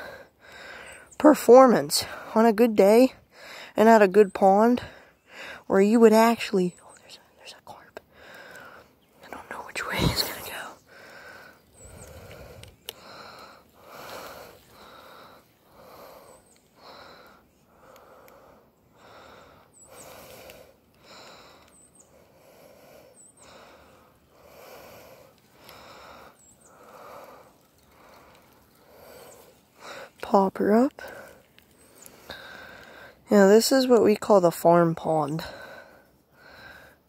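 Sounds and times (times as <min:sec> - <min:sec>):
person breathing: 0:00.0 - 0:01.1, 0:03.3 - 0:03.8, 0:04.8 - 0:05.7, 0:08.1 - 0:08.9, 0:09.8 - 0:30.2, 0:31.0 - 0:33.3, 0:35.4 - 0:37.0.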